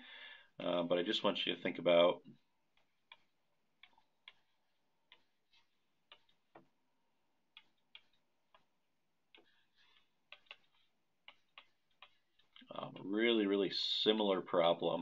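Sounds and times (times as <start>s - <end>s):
stylus tapping on tablet screen: 2.2s - 13.5s.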